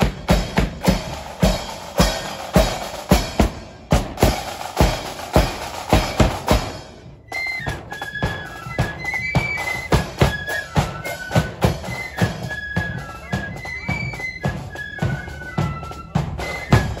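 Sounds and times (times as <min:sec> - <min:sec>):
march drumbeat: 0:00.0 - 0:17.0
flutes playing a tune: 0:05.9 - 0:17.0.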